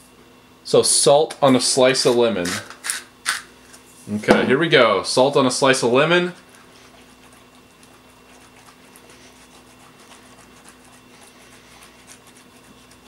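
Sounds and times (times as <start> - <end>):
low steady hum: 0.0 - 13.0
lemon slice rubbing on fingers: 6.2 - 13.0.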